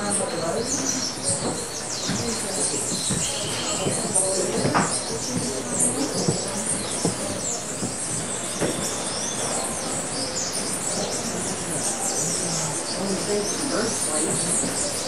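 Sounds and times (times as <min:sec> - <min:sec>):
small birds chirping: 0:00.0 - 0:15.0
faint knocks: 0:00.7 - 0:09.6.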